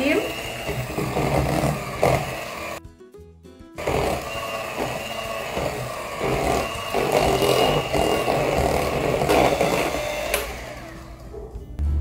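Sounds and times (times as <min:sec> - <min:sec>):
electric hand mixer whisking: 0:00.0 - 0:02.8, 0:03.8 - 0:11.3.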